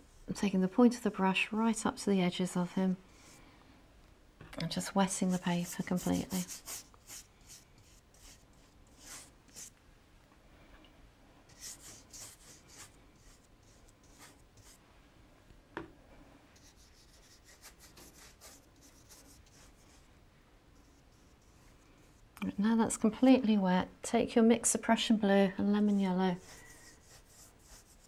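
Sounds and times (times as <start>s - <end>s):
brush strokes on paper: 5.1s - 9.7s, 11.5s - 14.8s, 16.6s - 20.1s, 20.8s - 22.3s, 25.7s - 28.0s.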